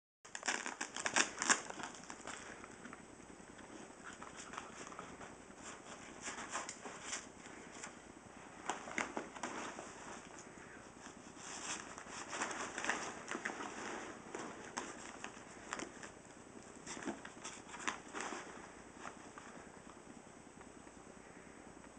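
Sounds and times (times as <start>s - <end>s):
fabric rustling: 3.7s - 10.4s, 11.0s - 16.2s, 16.8s - 19.8s.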